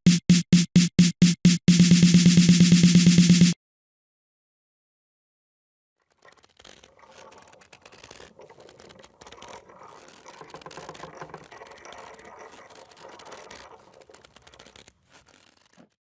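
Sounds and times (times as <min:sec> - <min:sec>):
wooden mechanism rattling and clicking: 0:06.0 - 0:16.0.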